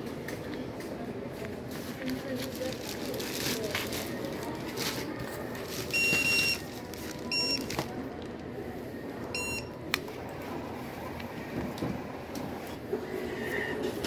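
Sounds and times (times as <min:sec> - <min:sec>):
payment terminal beeps: 0:05.8 - 0:07.9, 0:09.3 - 0:09.9.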